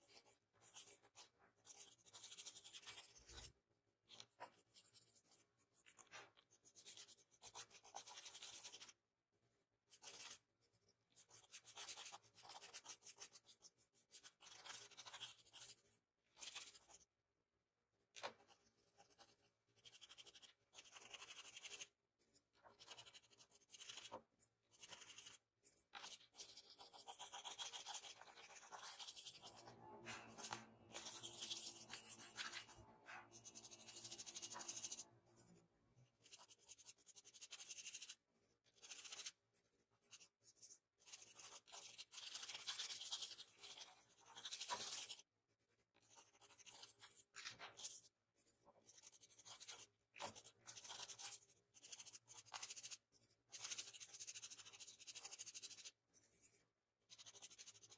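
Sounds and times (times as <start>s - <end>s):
pencil scratching on paper: 0.0s - 17.1s, 18.0s - 57.9s.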